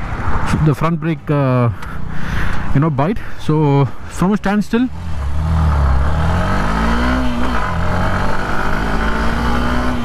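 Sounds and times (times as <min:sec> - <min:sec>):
motorcycle engine accelerating: 0:04.9 - 0:10.0.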